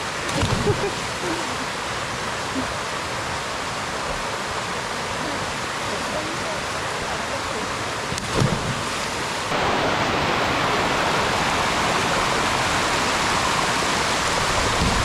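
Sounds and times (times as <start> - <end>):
small waterfall rushing: 0.0 - 15.0
water splash: 0.2 - 1.4, 8.1 - 12.3.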